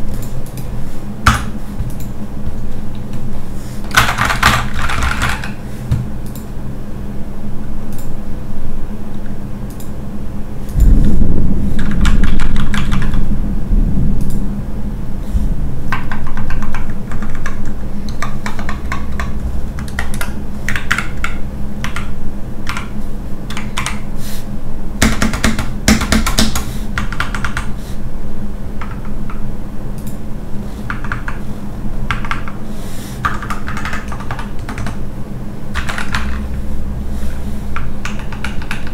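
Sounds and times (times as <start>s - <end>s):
mechanical keyboard typing: 3.9s - 5.6s, 11.8s - 13.2s, 15.9s - 22.9s, 23.5s - 24.1s, 25.0s - 27.7s, 30.9s - 31.4s, 32.1s - 32.6s, 33.2s - 35.0s, 35.8s - 36.5s, 37.8s - 38.9s.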